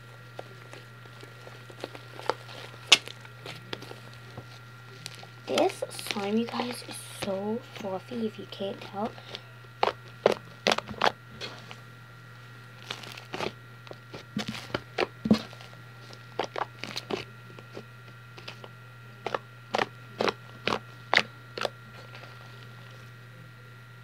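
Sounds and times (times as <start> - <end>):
slime crackling and popping: 0.3 - 4.3, 9.8 - 11.2, 12.8 - 13.6, 16.3 - 17.7, 19.2 - 22.3.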